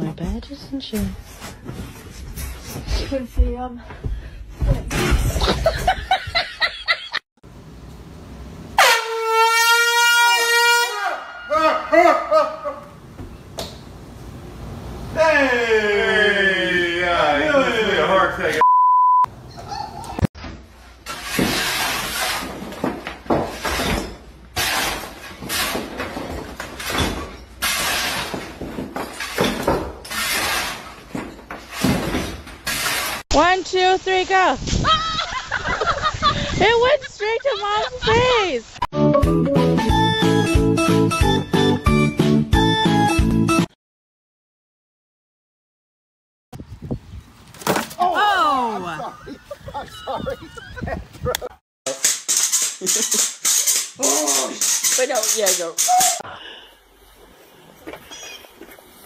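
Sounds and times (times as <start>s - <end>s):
air horn blare: 8.8s - 11.2s
shovel and broom scraping rubble: 21.0s - 33.2s, 51.9s - 56.2s.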